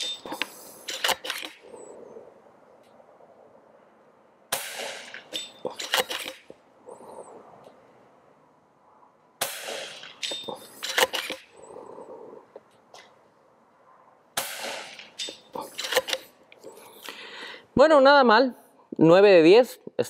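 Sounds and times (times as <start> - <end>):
air rifle shots: 4.5 - 6.5, 9.4 - 11.5, 14.4 - 16.3.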